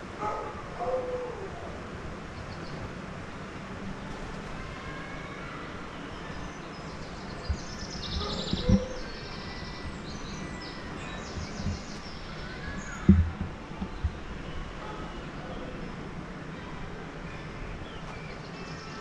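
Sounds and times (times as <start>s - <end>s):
outdoor background noise: 0.0s - 19.0s
small birds chirping: 5.2s - 16.0s
low thumps: 7.4s - 9.1s, 10.9s - 14.5s.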